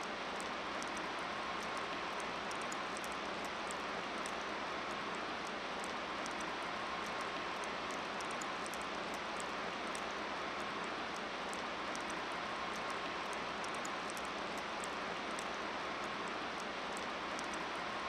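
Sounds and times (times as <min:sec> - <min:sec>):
faint high-pitched ticks: 0:00.0 - 0:18.0.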